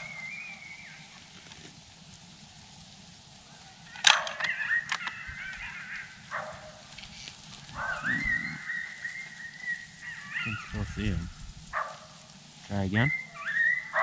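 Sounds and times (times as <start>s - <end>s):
coyotes yipping: 0.0s - 1.7s, 3.4s - 14.0s
coyote howling: 3.9s - 7.0s, 7.6s - 12.0s, 12.9s - 14.0s.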